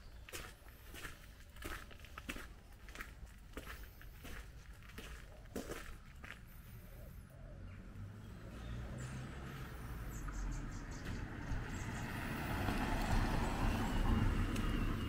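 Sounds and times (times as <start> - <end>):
car driving past: 6.6 - 15.0.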